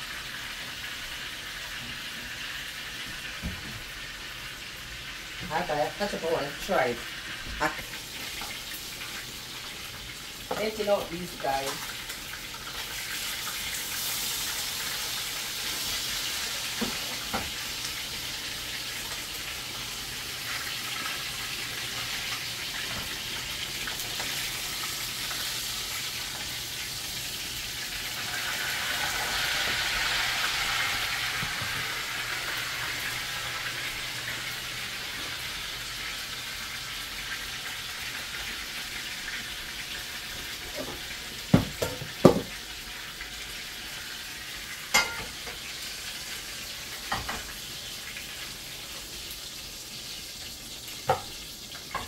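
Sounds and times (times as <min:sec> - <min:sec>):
chicken sizzling in hot oil: 0:00.0 - 0:52.0.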